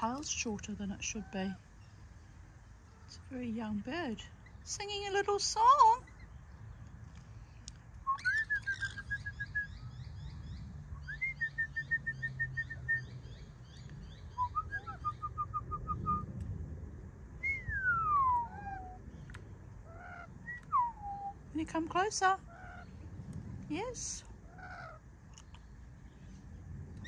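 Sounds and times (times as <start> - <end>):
parrot whistling: 8.1 - 9.8
bird chatter: 8.1 - 10.7.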